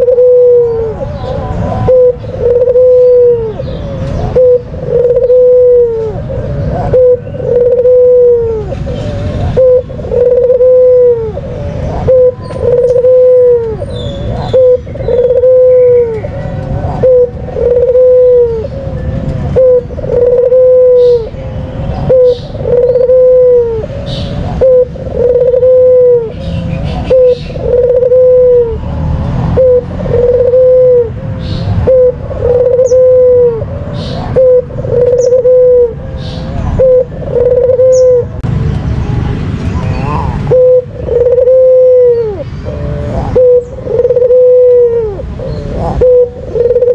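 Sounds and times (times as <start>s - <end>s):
dove cooing: 0.0s - 38.4s, 40.0s - 46.9s.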